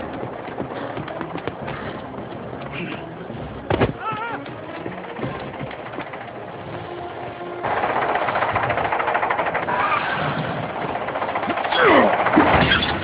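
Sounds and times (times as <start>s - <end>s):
quick falling screeches: 9.6s - 10.6s.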